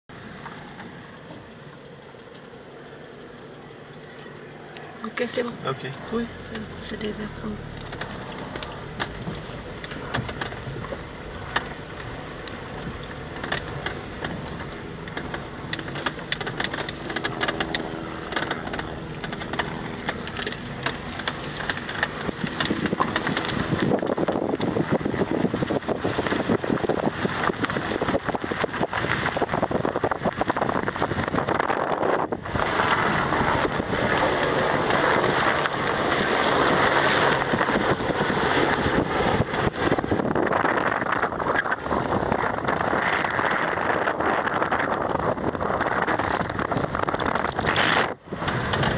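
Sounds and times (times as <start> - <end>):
tyre and road noise: 0.1 - 48.9
wind on microphone: 4.7 - 48.9
knocks and rattles: 7.7 - 36.2.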